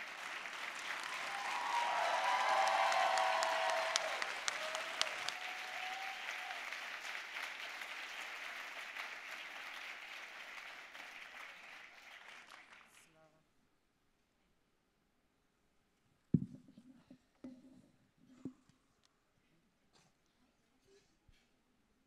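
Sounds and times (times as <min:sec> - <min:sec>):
large audience applauding: 0:00.0 - 0:13.1.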